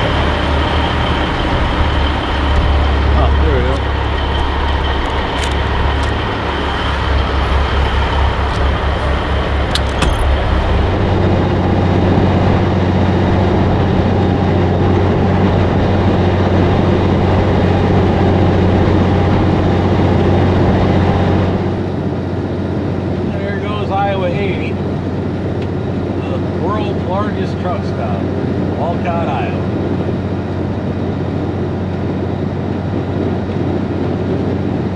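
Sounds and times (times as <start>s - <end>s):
diesel truck engine droning: 0.0s - 34.9s
sharp clicks: 9.7s - 10.4s.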